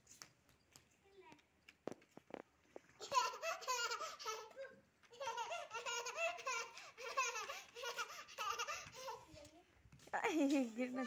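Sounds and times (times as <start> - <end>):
toddler laughing: 3.0 - 9.3.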